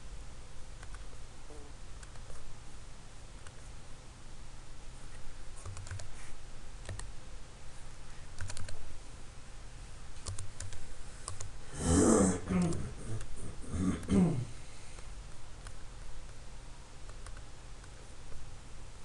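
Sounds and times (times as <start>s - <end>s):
computer keyboard typing: 5.6s - 6.1s, 6.8s - 7.1s, 8.4s - 8.8s, 10.2s - 11.5s.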